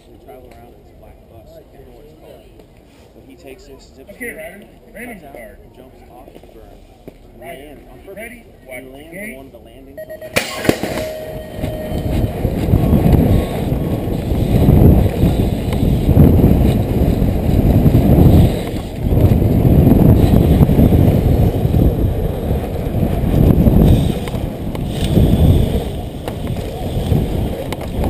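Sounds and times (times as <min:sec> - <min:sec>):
wind rushing over camera: 0:10.6 - 0:28.0
tyres rolling over packed dirt: 0:12.0 - 0:28.0.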